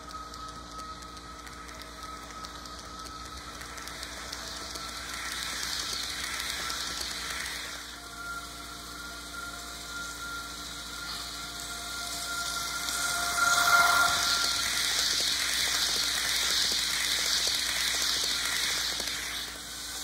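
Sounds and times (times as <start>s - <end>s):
faint motor whine: 0.0s - 20.0s.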